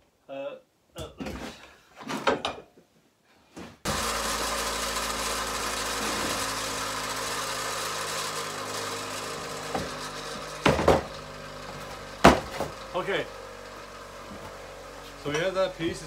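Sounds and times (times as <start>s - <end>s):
power tool cutting steel bar: 3.9s - 16.0s.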